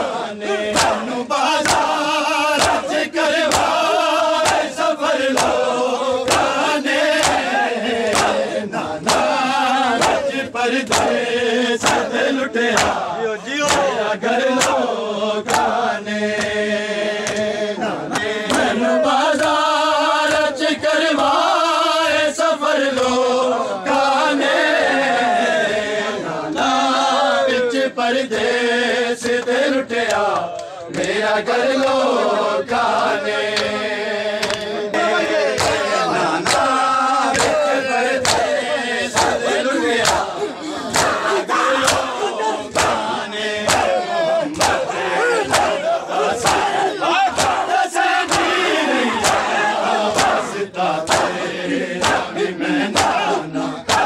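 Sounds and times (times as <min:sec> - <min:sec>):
men chanting in unison: 0:00.0 - 0:54.0
hands slapping bare chests: 0:00.7 - 0:11.2, 0:11.8 - 0:16.6, 0:17.2 - 0:19.6, 0:22.9 - 0:23.3, 0:29.2 - 0:32.1, 0:32.9 - 0:33.8, 0:34.4 - 0:34.8, 0:35.5 - 0:51.4, 0:52.0 - 0:52.3, 0:52.9 - 0:54.0.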